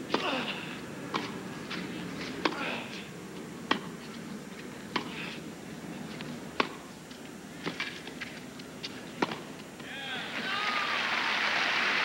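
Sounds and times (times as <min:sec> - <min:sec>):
tennis ball struck by rackets: 0:01.1 - 0:01.4, 0:02.4 - 0:02.6, 0:03.6 - 0:04.0, 0:04.9 - 0:05.2, 0:06.6 - 0:06.8, 0:09.2 - 0:09.5.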